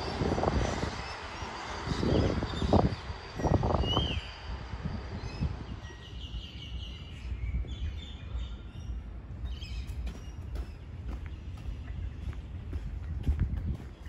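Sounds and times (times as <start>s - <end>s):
low outdoor rumble: 0.0s - 14.0s
small birds chirping: 5.2s - 14.0s.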